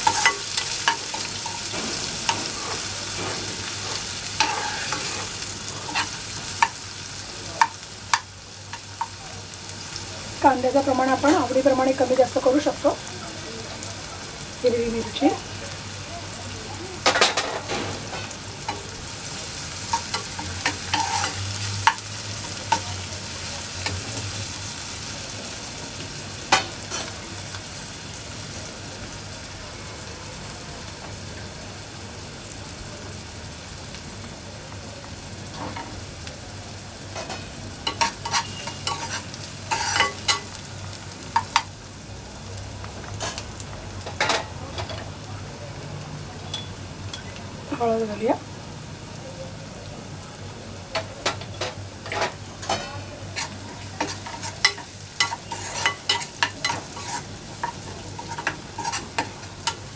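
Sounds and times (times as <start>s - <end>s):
spoon scraping and knocking pan: 0.0s - 6.8s, 19.9s - 22.9s, 37.2s - 40.5s, 51.0s - 59.8s
onion sizzling in hot oil: 0.0s - 59.9s.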